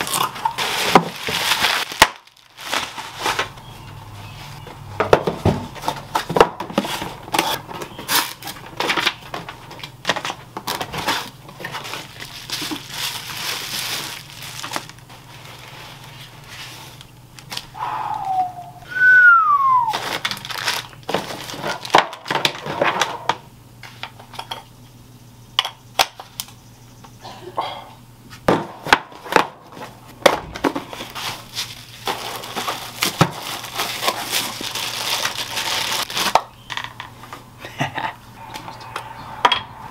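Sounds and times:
packaging crinkling and rustling: 0.0s - 4.6s, 5.2s - 17.8s, 19.8s - 24.0s, 29.1s - 36.9s.

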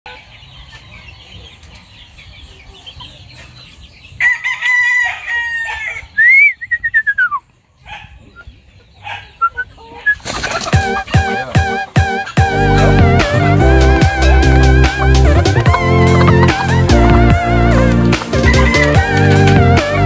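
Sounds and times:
hen clucking: 0.1s - 4.4s, 7.2s - 20.0s
rooster crowing: 4.2s - 6.1s
music with a beat: 10.8s - 20.0s.

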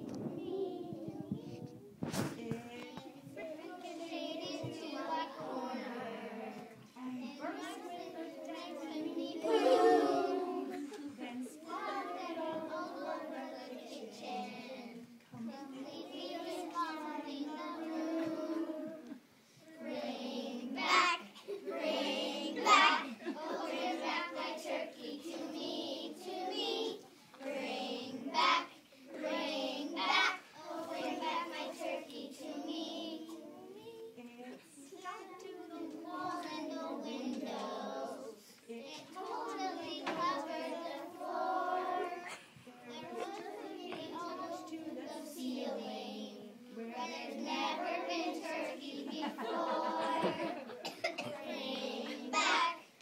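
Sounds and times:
children singing in unison: 0.0s - 33.8s, 35.4s - 53.0s.

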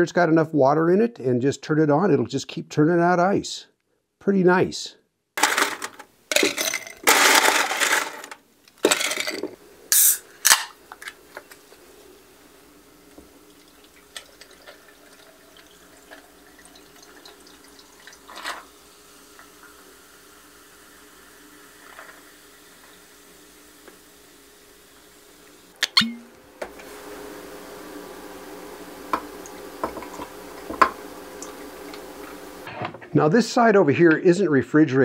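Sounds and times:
ice cubes clattering: 5.4s - 9.5s
cola fizzing over ice: 13.1s - 24.1s
liquid pouring: 13.2s - 23.1s.

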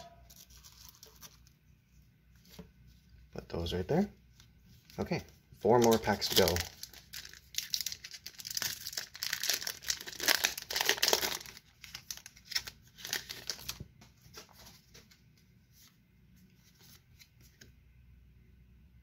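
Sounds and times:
foil wrapper crinkling and tearing: 0.3s - 1.5s, 5.7s - 13.9s
cards rustling: 0.3s - 1.6s, 4.4s - 15.2s.

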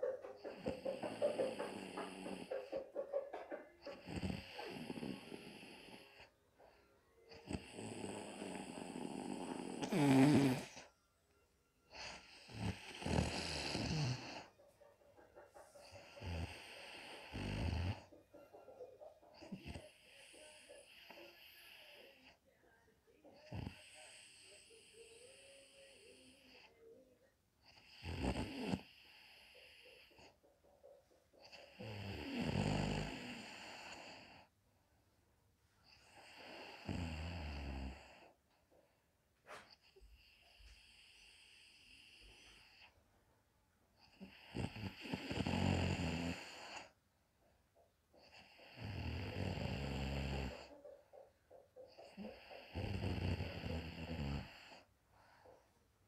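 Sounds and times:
quiet breaths: 0.0s - 56.0s
woman snoring: 0.4s - 2.5s, 3.8s - 6.3s, 7.3s - 10.9s, 11.9s - 14.5s, 16.0s - 18.1s, 23.4s - 26.8s, 27.7s - 30.1s, 31.5s - 34.5s, 35.9s - 38.4s, 44.0s - 46.9s, 48.2s - 50.7s, 52.0s - 54.9s.

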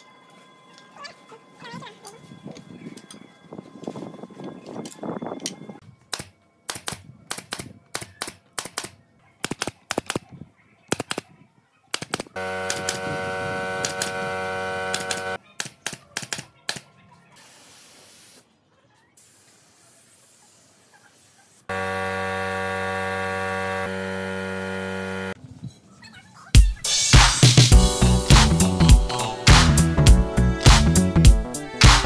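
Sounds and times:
machine hum: 12.4s - 15.4s, 21.7s - 25.4s.

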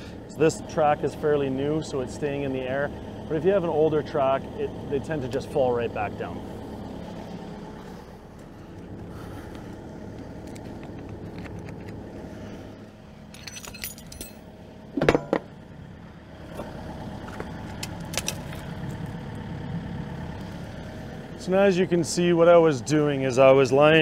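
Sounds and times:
excavator engine idling: 0.0s - 24.0s
chain links clinking: 13.3s - 14.5s.

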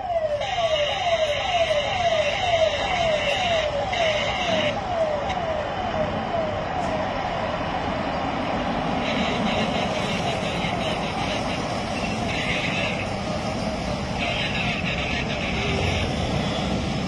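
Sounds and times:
siren falling tone: 0.0s - 10.2s
road traffic rush: 0.0s - 17.0s.

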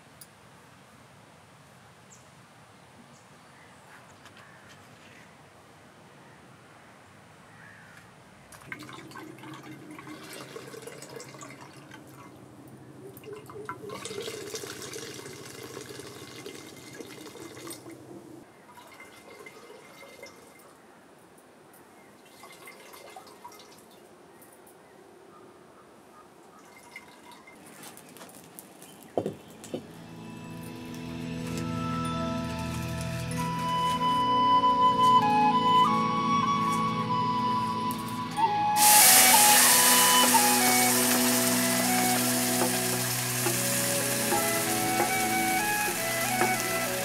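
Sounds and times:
liquid streaming into a pot: 8.6s - 12.4s, 13.2s - 18.0s, 18.8s - 20.6s, 22.3s - 23.8s, 38.8s - 47.0s.

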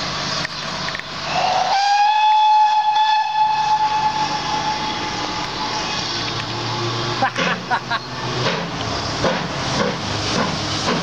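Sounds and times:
steam locomotive whistle: 1.3s - 5.9s.

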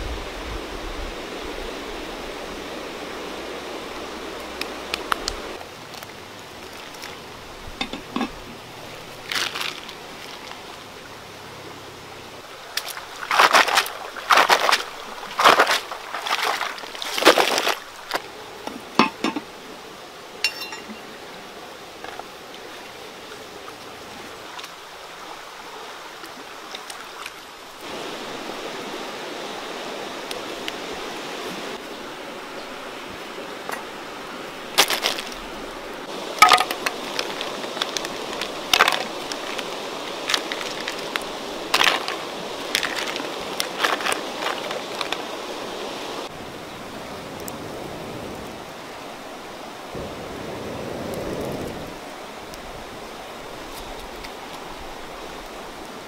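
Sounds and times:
water boiling in a pot: 2.9s - 10.9s, 12.4s - 48.8s.

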